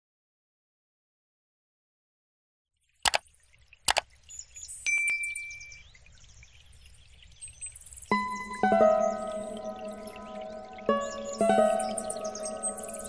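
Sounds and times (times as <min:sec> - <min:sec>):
sharp mouse clicks: 0:03.9 - 0:04.1
light glassy tinkle: 0:04.9 - 0:05.8.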